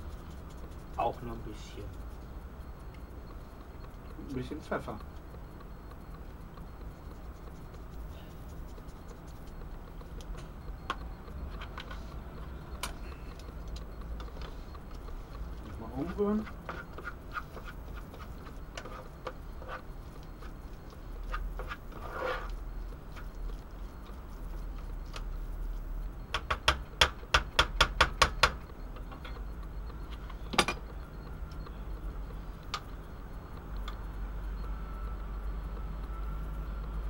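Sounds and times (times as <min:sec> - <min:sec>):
utensil scraping a frying pan: 0:21.2 - 0:22.6
sharp taps against a pan: 0:26.3 - 0:28.6.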